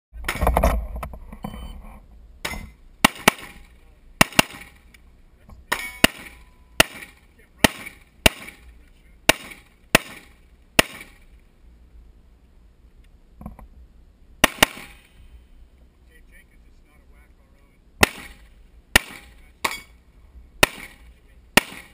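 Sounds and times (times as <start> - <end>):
rifle gunshots: 2.4 - 4.9, 5.7 - 11.3, 14.4 - 15.2, 18.0 - 19.9, 20.6 - 21.9.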